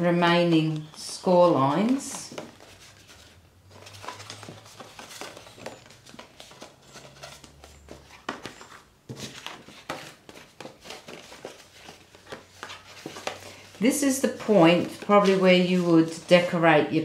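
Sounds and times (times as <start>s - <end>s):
cardstock rustling and tapping: 0.4s - 16.6s.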